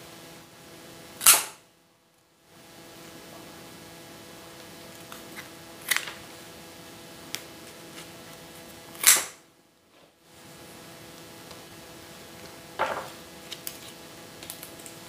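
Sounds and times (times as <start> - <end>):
faint room hum: 0.0 - 15.0
scissors snipping stem: 9.0 - 9.4.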